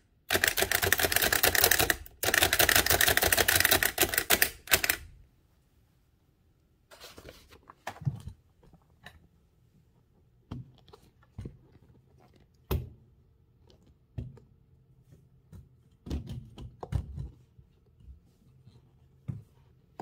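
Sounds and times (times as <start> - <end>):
typewriter handling clicks and knocks: 0.3 - 5.0.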